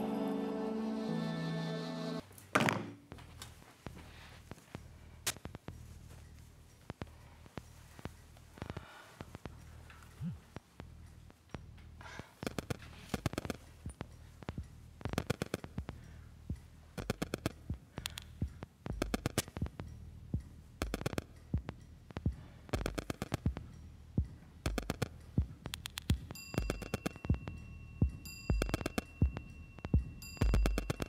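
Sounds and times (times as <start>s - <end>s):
steady high tone: 0.0s - 2.2s
sharp ticking clicks: 4.5s - 31.0s.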